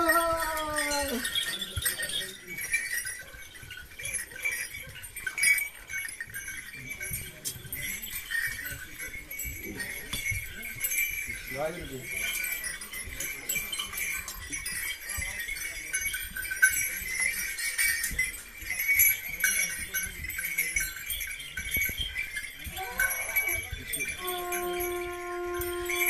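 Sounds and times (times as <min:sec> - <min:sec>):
small metal bells jingling: 0:00.0 - 0:26.0
blown horn note: 0:24.2 - 0:26.0.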